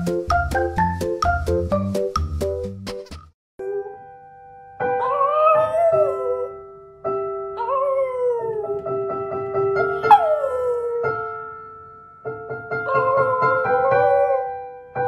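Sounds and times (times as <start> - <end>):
slow piano chords: 3.6 - 15.0
puppy howling: 5.0 - 6.5, 7.6 - 8.8, 9.9 - 11.2, 12.9 - 14.5.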